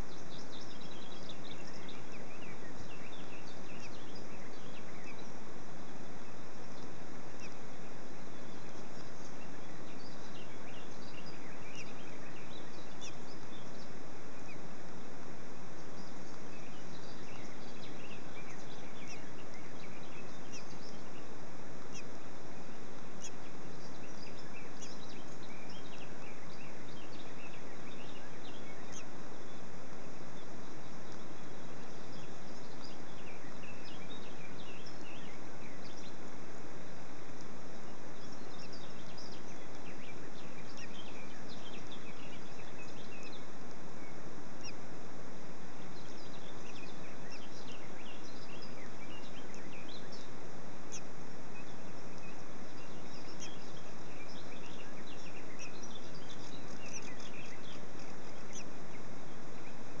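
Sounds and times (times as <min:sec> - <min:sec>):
steady background hiss: 0:00.0 - 1:00.0
high bird chirps: 0:50.9 - 0:58.7.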